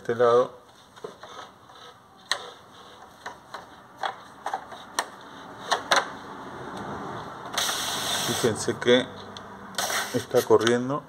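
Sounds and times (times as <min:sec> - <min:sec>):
slat sliding scrape: 0:00.8 - 0:06.3.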